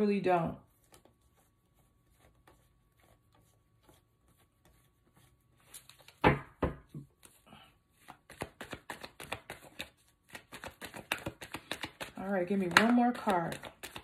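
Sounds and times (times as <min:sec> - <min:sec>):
cards shuffling: 0:04.7 - 0:06.3, 0:07.0 - 0:14.0
cards slapped on table: 0:06.0 - 0:06.9.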